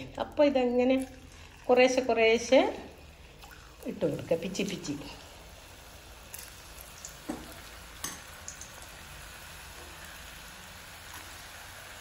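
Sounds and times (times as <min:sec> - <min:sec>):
fritters sizzling in oil: 0:01.2 - 0:12.0.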